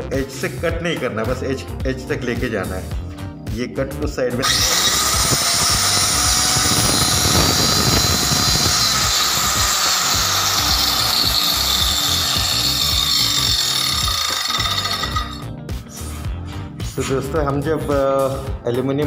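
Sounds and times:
power tool cutting wood: 4.4 - 15.4.

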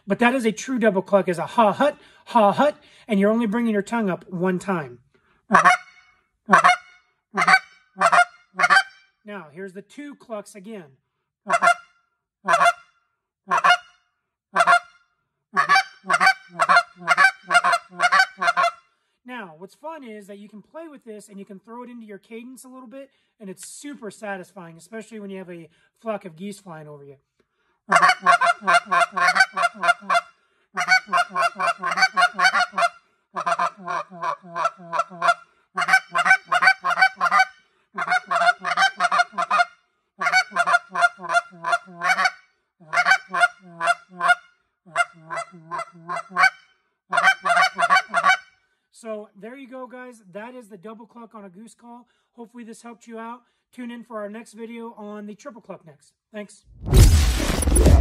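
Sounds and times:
goose call clucks: 5.5 - 9.0, 11.5 - 12.9, 13.5 - 14.0, 14.6 - 15.0, 15.6 - 18.8, 27.9 - 48.5.

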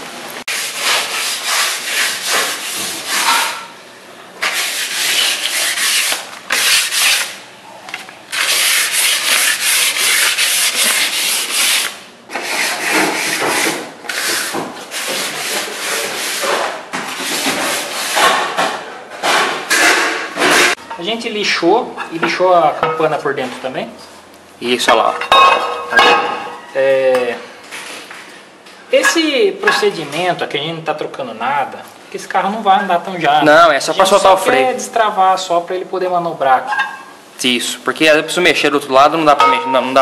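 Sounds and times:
sandpaper rubbing metal drum: 0.5 - 3.6, 4.4 - 7.4, 8.3 - 18.4.

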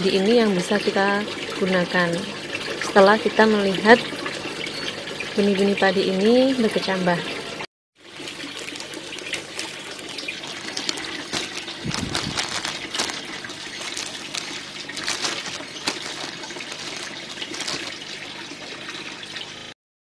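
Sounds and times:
plastic bag crinkling: 8.6 - 18.5.

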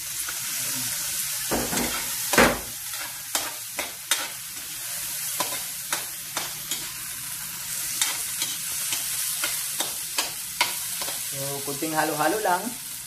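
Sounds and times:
oil sizzling in a wok: 0.0 - 13.0
metal spoon scraping a wok: 1.7 - 7.1, 7.7 - 11.3.

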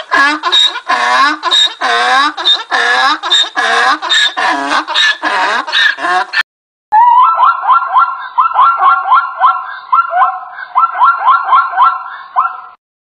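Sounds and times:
zebra yelping barks: 7.1 - 12.8.

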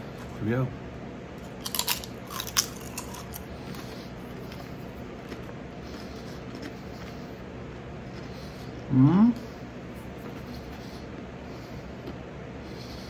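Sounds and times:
potato chip crunching: 1.4 - 3.4
person chewing: 1.4 - 8.9.

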